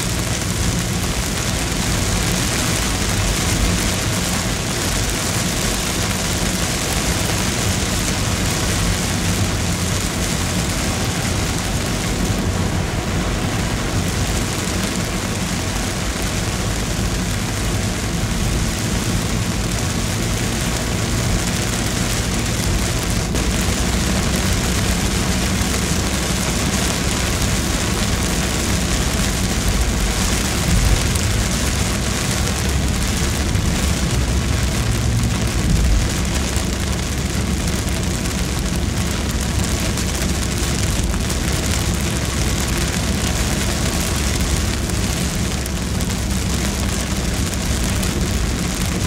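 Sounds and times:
car rumbling on wet road: 0.0 - 49.0
heavy rain on car roof: 0.0 - 49.0.

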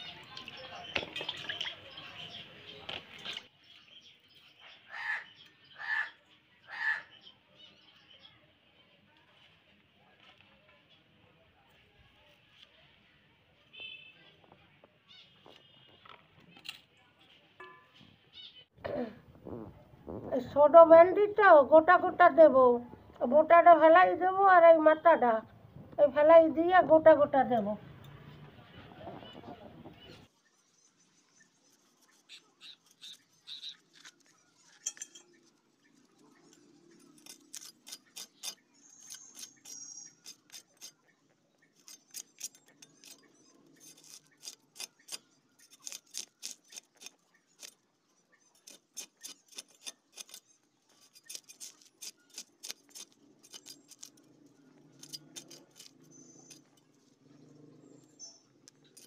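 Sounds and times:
knife scraping fish scales: 31.6 - 35.6, 36.4 - 41.0, 41.7 - 47.8, 48.4 - 57.2.

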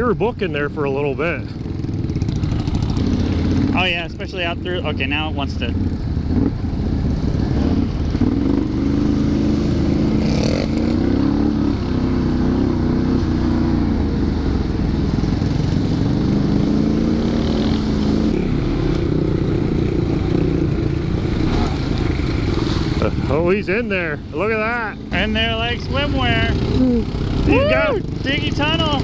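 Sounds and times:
atv engine revving: 0.0 - 29.0.

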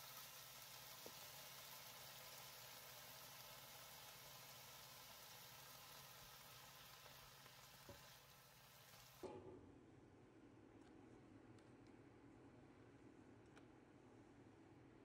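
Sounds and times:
vegetables sizzling in a pan: 0.0 - 9.2.

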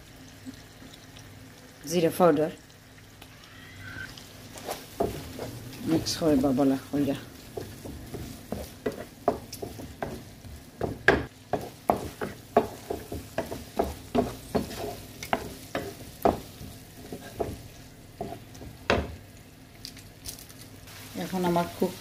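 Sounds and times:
low sizzle of frying: 0.0 - 22.0
spatula scraping frying pan: 4.5 - 6.4, 7.4 - 10.3, 11.5 - 18.5.

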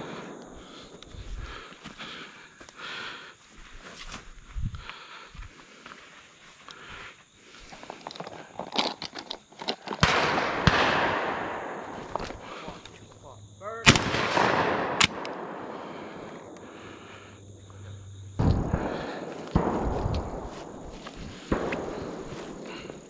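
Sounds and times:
shotgun shots echoing: 10.0 - 12.1, 13.8 - 16.0, 18.4 - 23.0.

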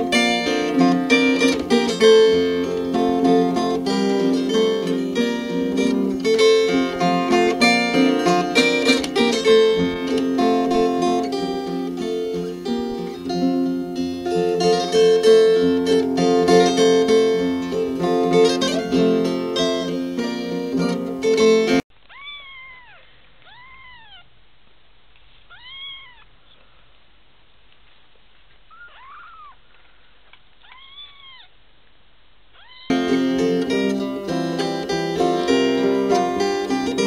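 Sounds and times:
plucked-string background music: 0.0 - 21.8, 32.9 - 37.0
kittens mewing: 22.0 - 24.3, 25.5 - 26.6, 28.7 - 29.7, 30.3 - 31.5, 32.5 - 33.0.

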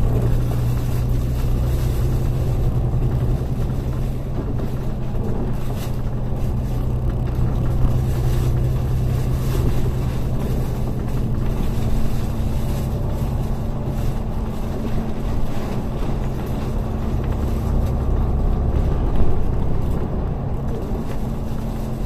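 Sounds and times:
bus engine drone: 0.0 - 22.0
road rumble: 0.0 - 22.0.

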